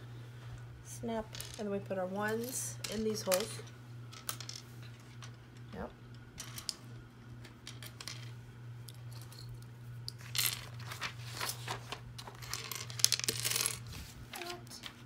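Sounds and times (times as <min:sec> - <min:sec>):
plastic bricks clicking and clattering: 0:12.2 - 0:13.8.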